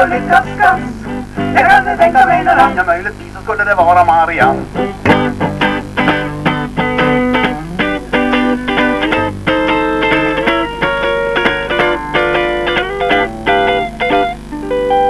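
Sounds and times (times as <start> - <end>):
electric guitar melody: 0.0 - 2.9, 3.8 - 15.0
low bass accompaniment: 4.4 - 14.9.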